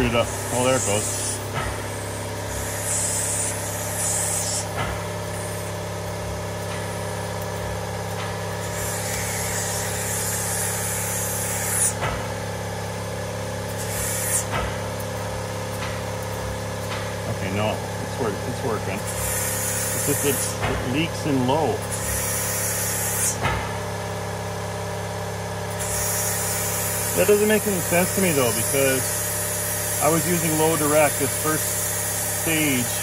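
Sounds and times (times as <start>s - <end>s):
compressed air hissing: 0.0s - 5.8s, 8.6s - 12.0s, 13.7s - 14.6s, 19.1s - 20.6s, 21.9s - 23.4s, 25.7s - 33.0s.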